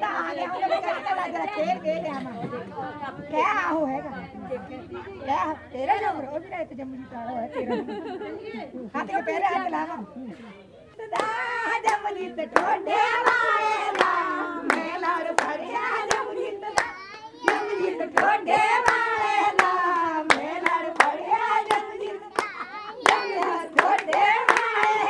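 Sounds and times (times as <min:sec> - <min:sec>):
women singing: 0:00.0 - 0:10.0, 0:11.0 - 0:25.0
sharp hand claps: 0:11.2 - 0:12.0, 0:22.4 - 0:25.0.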